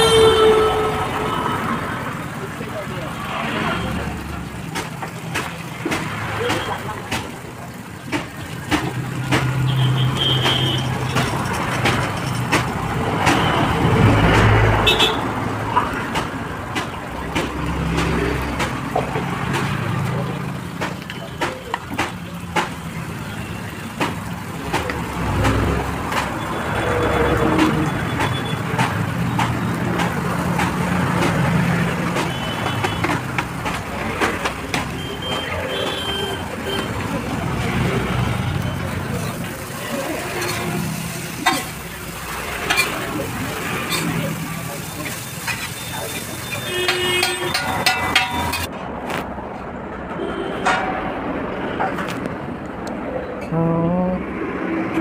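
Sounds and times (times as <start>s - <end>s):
road traffic hum: 0.0s - 55.0s
metal spatula clinking on griddle: 46.9s - 48.7s.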